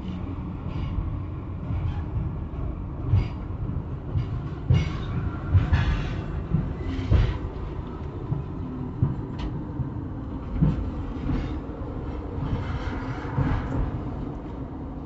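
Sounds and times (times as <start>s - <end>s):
train wheel rumble: 0.0s - 15.0s.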